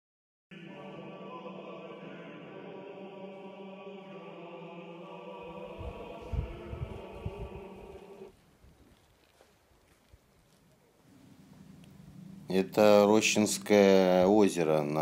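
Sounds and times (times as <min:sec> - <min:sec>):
choral chant: 0:00.5 - 0:08.4
wind gusts on microphone: 0:05.6 - 0:09.0.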